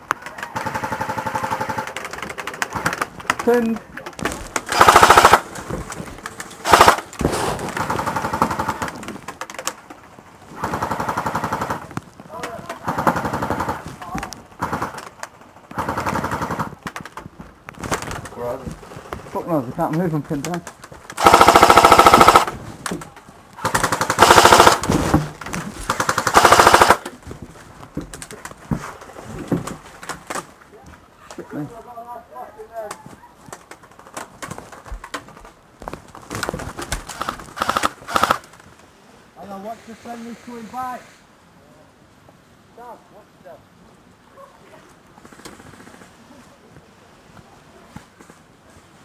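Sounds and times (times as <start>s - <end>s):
airsoft guns firing bursts: 0.4s - 3.7s, 4.6s - 5.6s, 6.6s - 9.0s, 10.6s - 11.9s, 12.8s - 13.9s, 14.6s - 15.1s, 15.7s - 16.8s, 21.2s - 22.6s, 23.6s - 25.1s, 25.9s - 27.1s, 37.1s - 38.5s.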